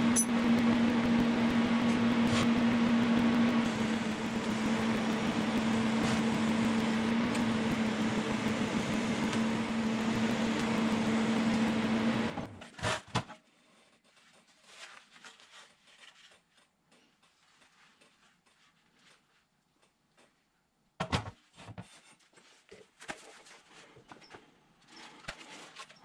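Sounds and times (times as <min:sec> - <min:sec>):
machine motor humming: 0:00.0 - 0:12.5.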